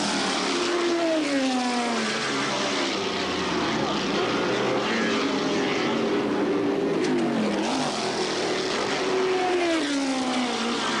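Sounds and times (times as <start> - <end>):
racing car engines at speed: 0.0 - 11.0.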